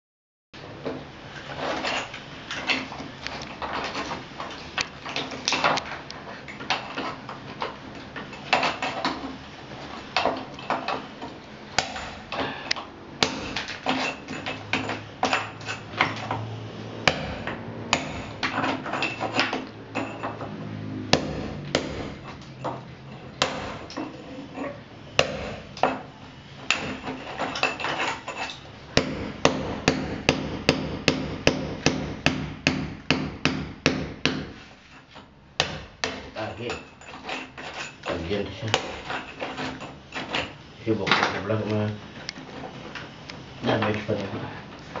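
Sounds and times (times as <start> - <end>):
hammer chipping concrete: 11.8 - 12.2, 13.2 - 14.1, 17.1 - 19.6, 21.2 - 22.2, 23.4 - 24.0, 25.2 - 26.0, 26.7 - 34.5, 35.6 - 36.8, 38.6 - 39.2.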